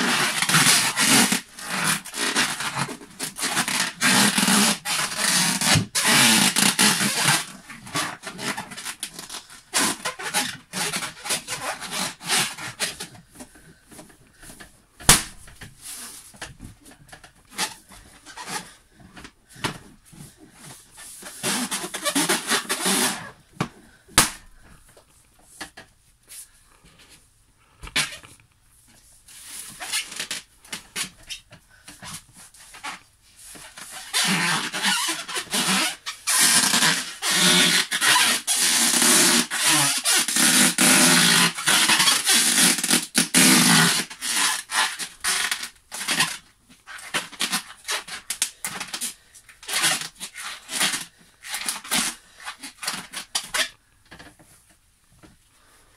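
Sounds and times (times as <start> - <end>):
rubber balloons squeaking: 0.0 - 24.8, 27.8 - 28.4, 29.7 - 53.8
balloon popping: 15.0 - 15.8, 24.1 - 24.6.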